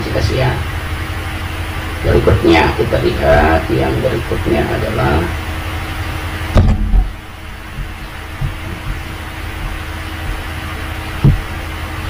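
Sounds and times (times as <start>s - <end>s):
steady low hum: 0.0s - 12.0s
dull thumps: 6.5s - 11.6s.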